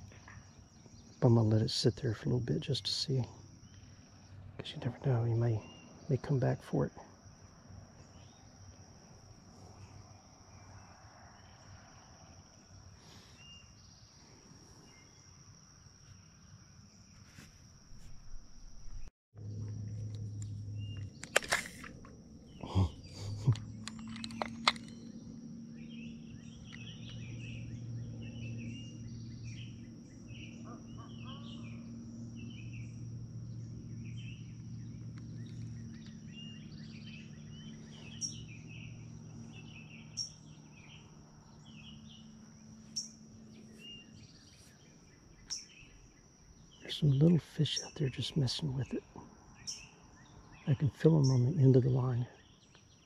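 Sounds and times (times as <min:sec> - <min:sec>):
birds chirping: 0:00.0 - 0:53.0
high insect drone: 0:00.0 - 0:53.0
low hum: 0:17.8 - 0:45.2.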